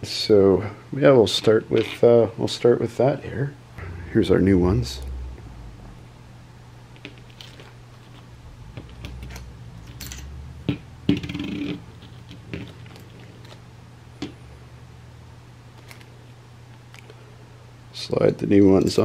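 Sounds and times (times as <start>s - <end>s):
steady low hum: 3.0s - 17.9s
small metal parts clicking: 9.2s - 10.3s.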